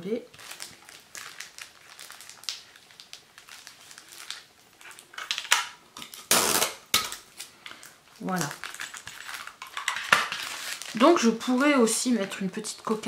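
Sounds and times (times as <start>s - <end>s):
cellophane rustling: 0.0s - 13.0s
tape tearing click: 5.2s - 7.2s.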